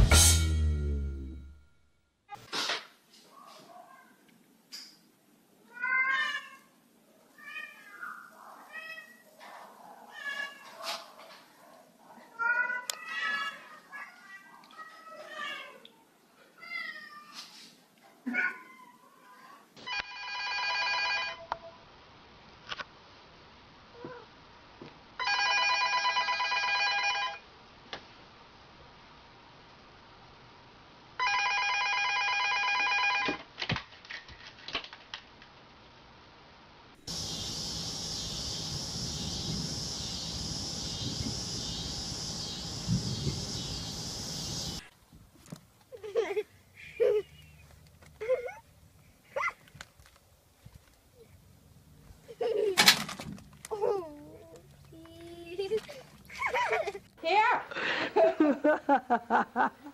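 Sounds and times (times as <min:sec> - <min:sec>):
cat meowing: 0:05.6 - 0:06.7, 0:07.3 - 0:09.3, 0:10.1 - 0:10.7
electronic telephone ringer trilling: 0:31.2 - 0:33.3
crickets chirping: 0:37.0 - 0:44.9
low microphone rumble: 0:37.1 - 0:44.8.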